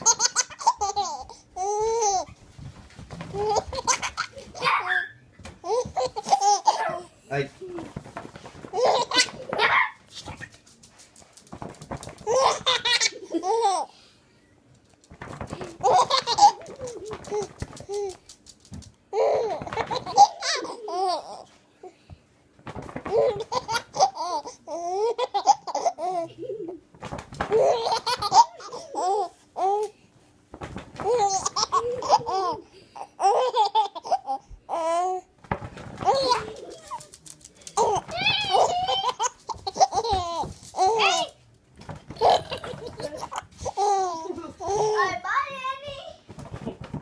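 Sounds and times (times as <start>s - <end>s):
baby laughing: 0.0s - 2.3s, 3.3s - 7.1s, 8.6s - 10.5s, 12.2s - 13.9s, 15.5s - 18.2s, 19.1s - 21.5s, 23.0s - 26.8s, 27.4s - 29.9s, 31.0s - 35.2s, 36.0s - 41.4s, 42.1s - 45.7s.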